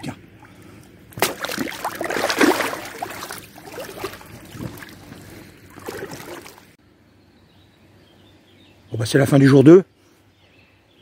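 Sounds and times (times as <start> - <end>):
fish splashing in water: 1.1 - 6.8.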